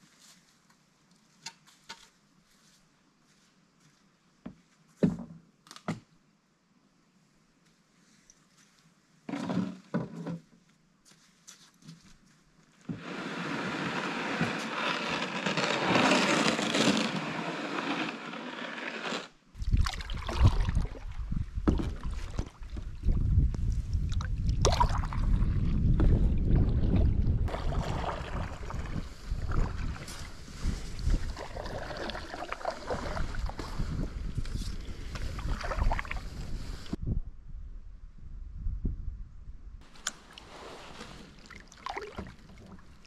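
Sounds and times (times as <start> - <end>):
wind buffeting microphone: 19.6 - 39.9
paddle strokes splashing in water: 25.9 - 34.0, 40.2 - 43.0
rushing water: 26.6 - 33.6, 40.2 - 43.0.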